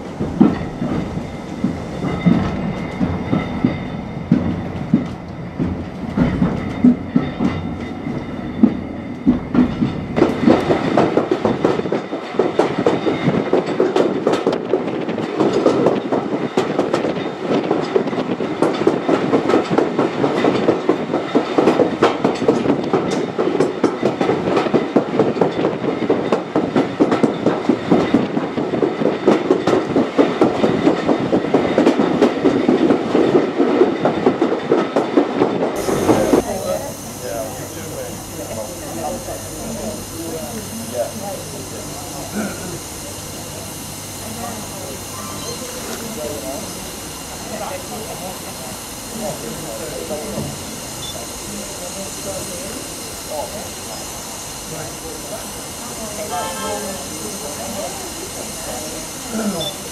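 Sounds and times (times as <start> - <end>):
train wheels clattering over rail joints: 0.0 - 36.2.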